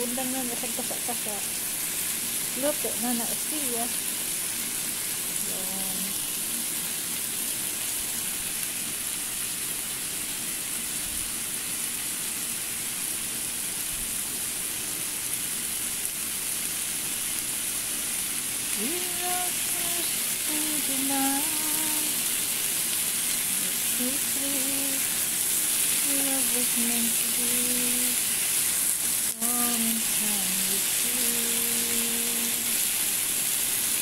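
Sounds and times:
chicken sizzling in a pan: 0.0s - 34.0s.

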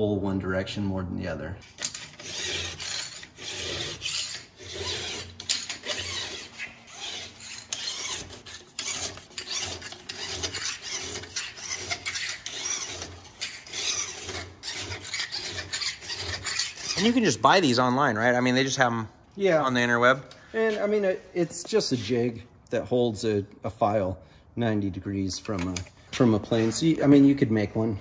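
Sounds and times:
file rasping on steel: 1.7s - 17.4s.

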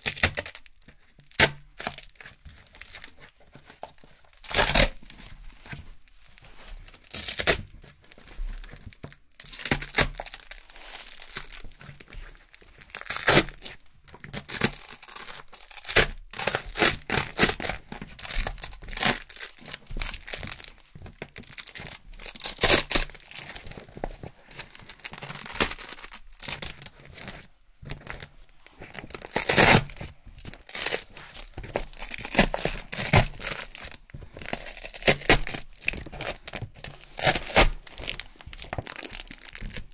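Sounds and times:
velcro ripping: 4.4s - 5.0s, 13.0s - 13.7s, 21.6s - 23.6s, 24.8s - 26.7s, 28.9s - 39.9s.

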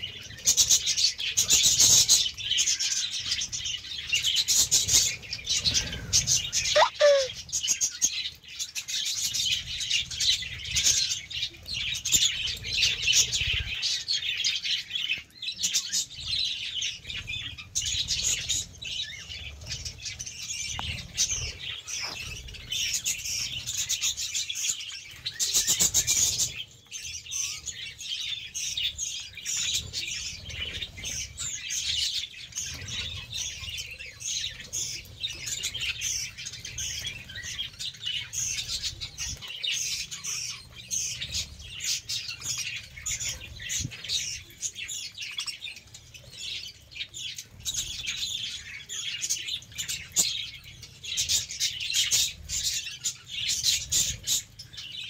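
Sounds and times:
budgerigars chattering: 6.8s - 7.3s.

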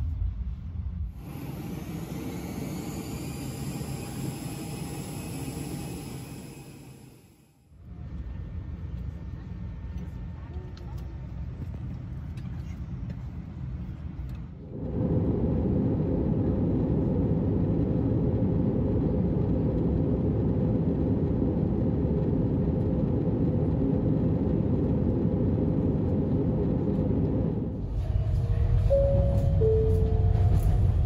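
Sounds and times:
jet airliner cabin rumble: 0.0s - 7.2s, 7.9s - 31.0s.

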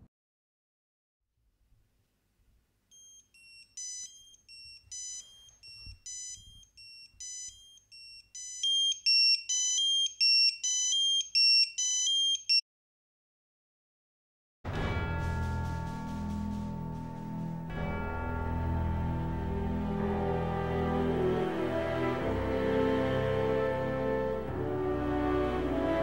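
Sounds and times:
pager beeping melody: 3.0s - 12.6s.

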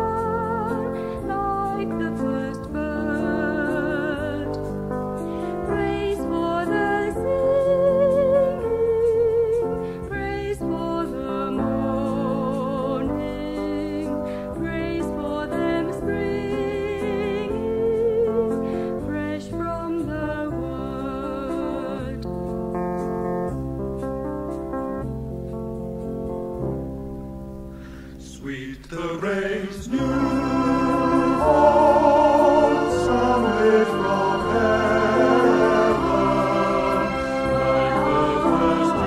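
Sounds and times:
person singing with vibrato: 28.3s - 39.0s
sustained chordal accompaniment: 29.9s - 39.0s.

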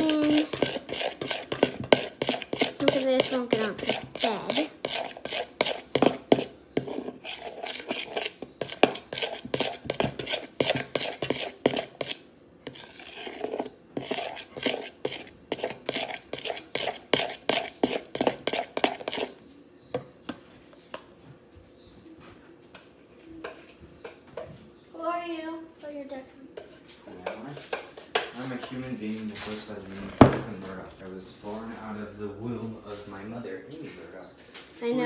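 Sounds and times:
utensil stirring slime in bowl: 0.0s - 19.4s.

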